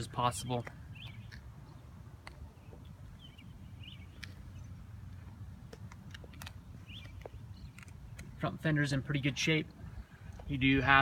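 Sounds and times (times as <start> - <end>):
bird chirps: 0.8 - 4.9, 6.6 - 8.4.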